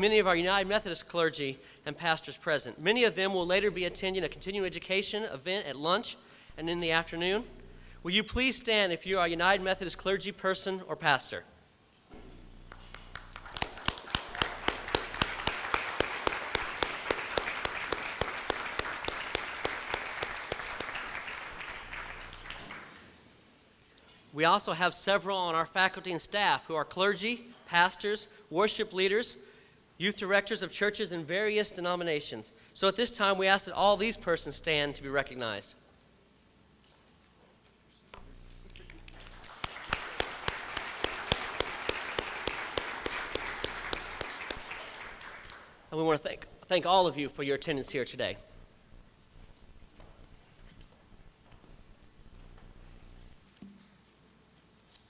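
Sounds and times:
close sharp hand claps: 12.7 - 23.2, 38.7 - 45.8
crowd applauding: 12.7 - 23.2, 38.7 - 45.8.

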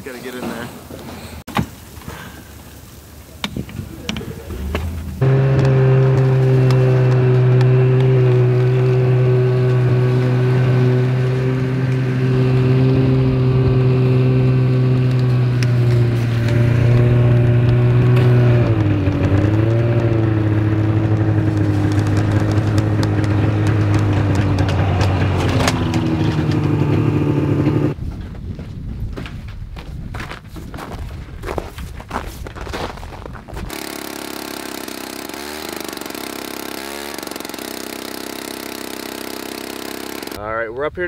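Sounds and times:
snowmobile engine running: 3.7 - 28.0, 33.6 - 40.4.

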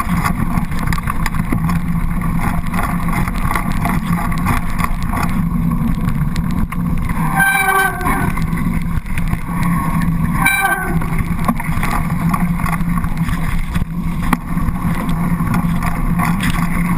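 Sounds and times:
bike tyres rumbling on dirt: 0.0 - 16.9
wind buffeting microphone: 0.0 - 16.9
brief pitched sounds: 7.3 - 8.4.

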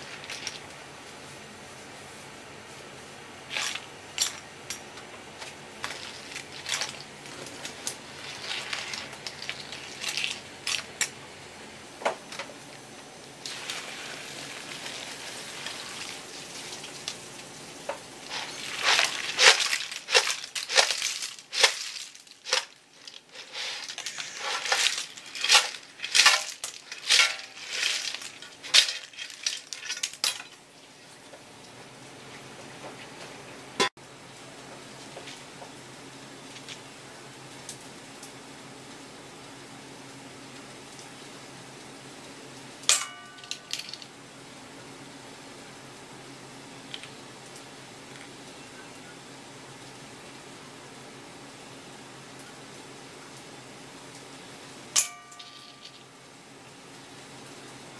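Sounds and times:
clam shells clattering: 18.3 - 30.5.

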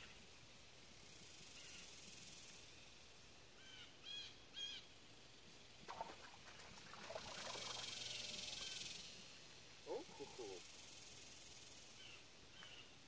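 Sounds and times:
high cicada buzz: 0.9 - 5.0, 7.1 - 12.8
bird calls: 9.9 - 10.7.

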